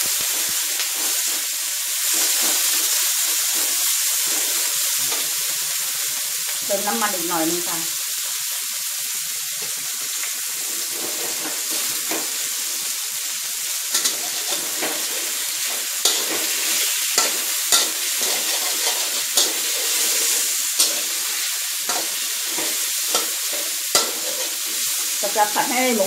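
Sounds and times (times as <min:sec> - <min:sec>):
pork sizzling in hot oil: 0:00.0 - 0:26.0
metal spatula scraping a wok: 0:00.2 - 0:05.3, 0:10.6 - 0:12.7, 0:13.8 - 0:25.4.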